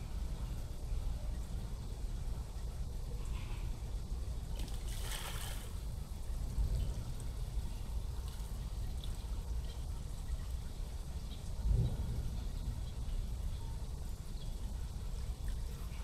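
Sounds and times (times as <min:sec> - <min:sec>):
water splashing and trickling: 0:04.2 - 0:16.0
steady low rumble: 0:05.8 - 0:16.0.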